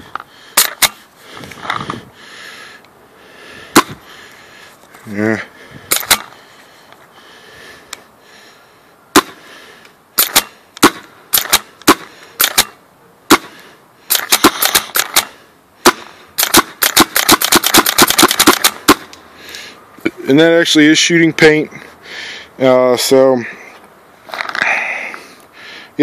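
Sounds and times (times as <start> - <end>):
paintball marker firing pops: 10.2 - 13.5.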